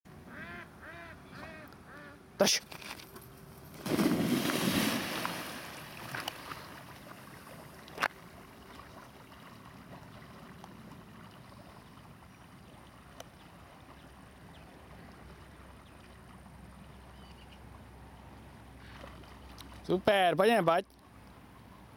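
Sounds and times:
dog splashing into pond: 3.7s - 11.4s.

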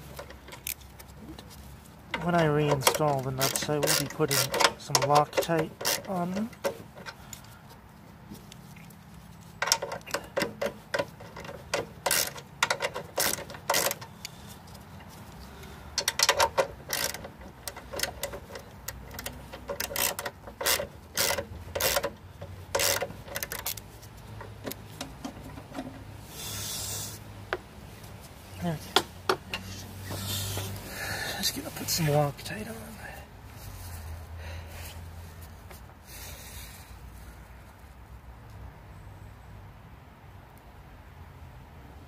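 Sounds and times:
socket ratchet clicking: 2.6s - 7.2s, 9.6s - 14.4s, 16.0s - 25.6s
brief hiss: 26.3s - 27.2s.

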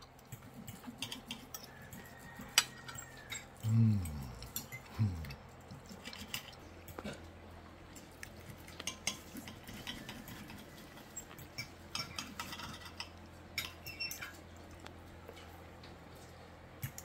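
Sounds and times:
cutlery scraping on plate: 11.5s - 14.4s.

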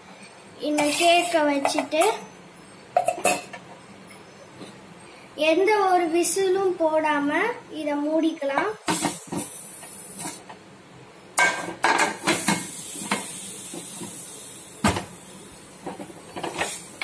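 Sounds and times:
metal pot lid clanking and scraping: 3.0s - 3.6s, 11.4s - 13.3s, 15.8s - 16.8s.

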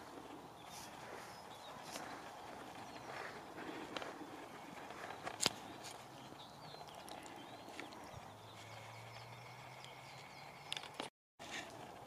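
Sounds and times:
faint bird chirps: 4.2s - 11.0s.

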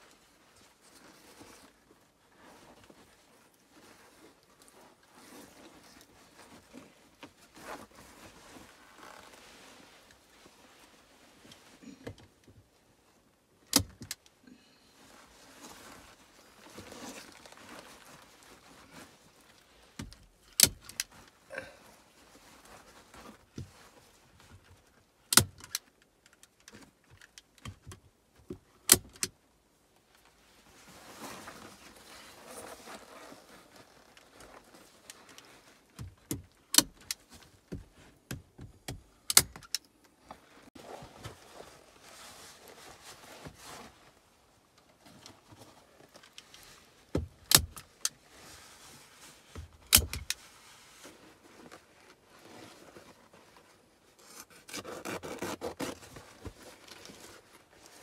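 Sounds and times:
heavy fabric rustling: 30.2s - 36.0s, 40.4s - 47.1s.

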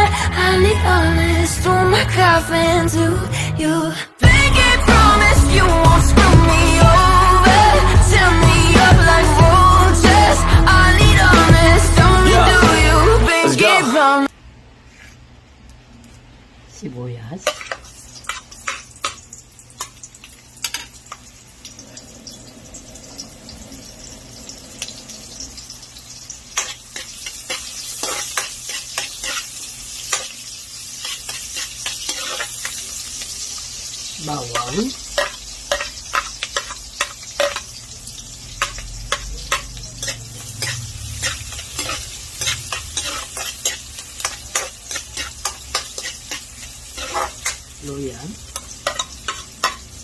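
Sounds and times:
food sizzling in hot oil: 17.4s - 50.0s
metal ladle scraping wok: 31.0s - 32.9s, 38.5s - 47.8s.

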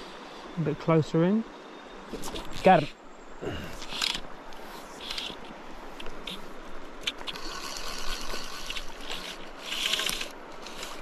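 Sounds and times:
fishing line hissing through guides: 3.6s - 11.0s.

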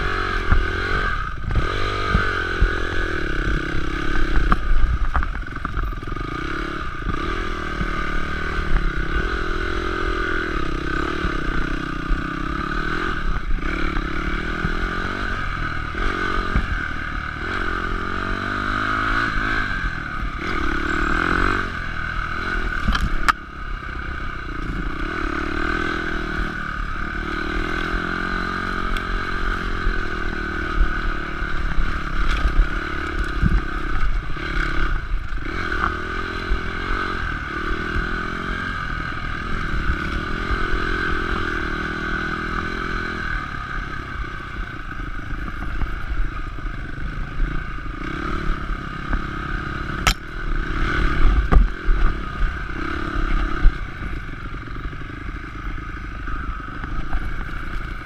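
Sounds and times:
bike rattling over rough track: 0.0s - 58.0s
dirt bike engine revving: 0.0s - 58.0s.

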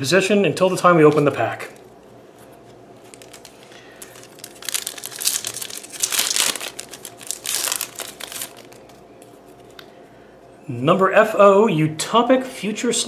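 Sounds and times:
foil wrapper crinkling and tearing: 1.0s - 9.8s.

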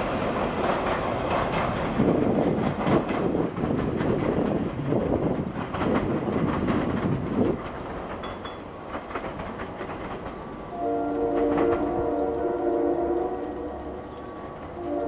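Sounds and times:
train rumbling and clacking: 0.0s - 15.0s
train horn chord: 10.7s - 15.0s.

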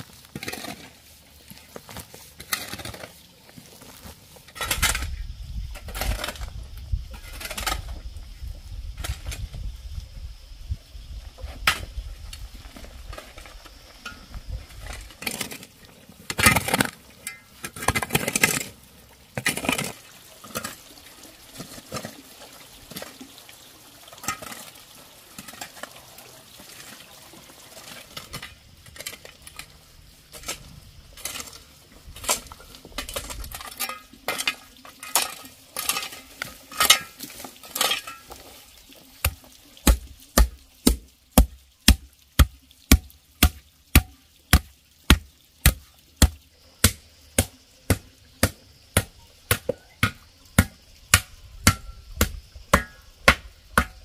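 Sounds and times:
hoe scraping through stony soil: 0.0s - 5.2s, 5.8s - 8.0s, 14.7s - 18.8s, 19.4s - 20.8s, 27.8s - 40.1s
hoe striking packed ground: 39.2s - 54.0s.

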